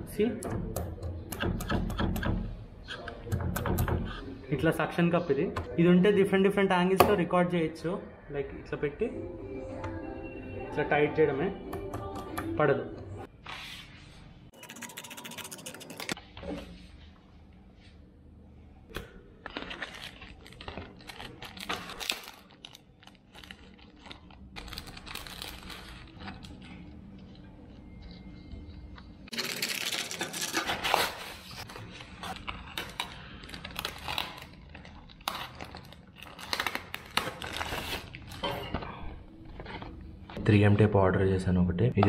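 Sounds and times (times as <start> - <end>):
plastic packaging crinkling: 19.4 - 28.2, 29.3 - 38.5.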